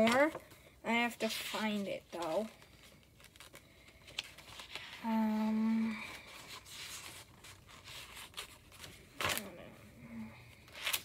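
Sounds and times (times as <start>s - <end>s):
paper pages rustling: 0.0s - 5.0s, 6.1s - 9.6s.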